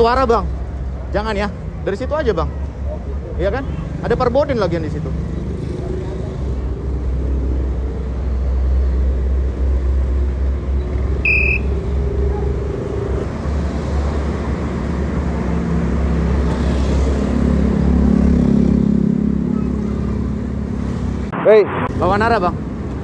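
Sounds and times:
vehicle engines running: 0.0 - 23.0
short high beep: 11.2 - 11.7.

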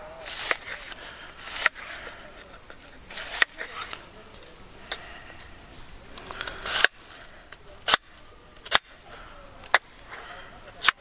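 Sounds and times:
knife slicing cabbage: 0.2 - 2.1, 3.0 - 4.0.

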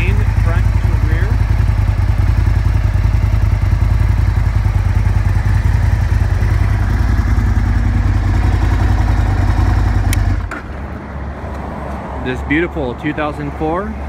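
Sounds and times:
motorcycle engine idling: 0.0 - 11.0.

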